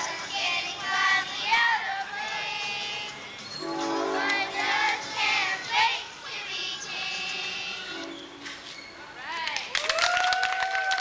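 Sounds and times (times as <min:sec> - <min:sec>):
children singing: 0:03.8 - 0:08.2.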